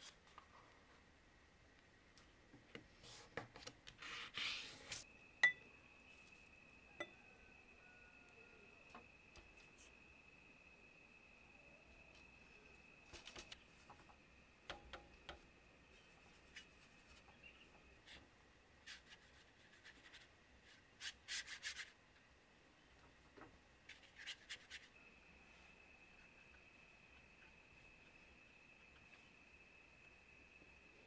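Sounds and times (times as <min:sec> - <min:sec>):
paintbrush scratching on paper: 0:18.8 - 0:21.9, 0:23.9 - 0:24.9.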